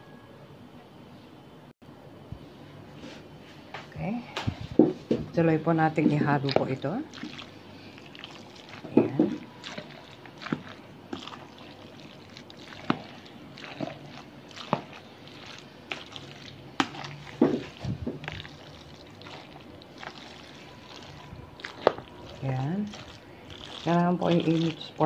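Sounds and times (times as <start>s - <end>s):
wet squelching of pasta: 6.2s - 25.0s.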